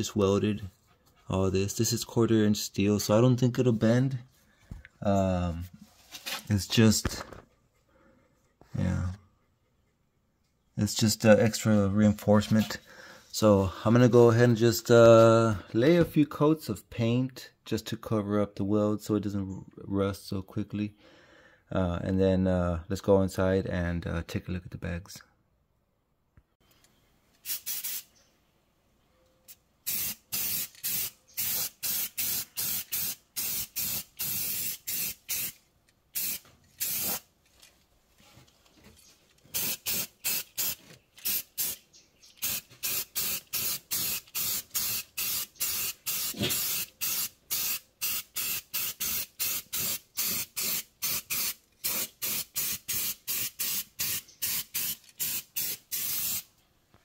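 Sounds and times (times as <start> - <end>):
spray can hissing bursts: 27.4 - 28.1, 29.8 - 35.6, 36.2 - 37.3, 39.5 - 41.8, 42.4 - 56.5.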